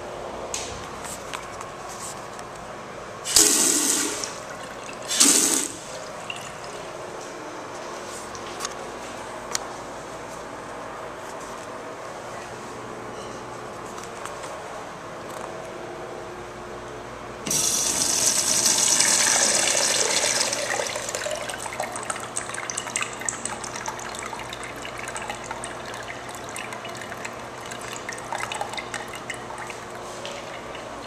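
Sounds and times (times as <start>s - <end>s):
urinal flush water rushing: 3.3s - 6.9s, 17.5s - 31.0s
water trickling and dripping: 4.2s - 5.1s, 5.9s - 6.9s, 20.5s - 31.0s.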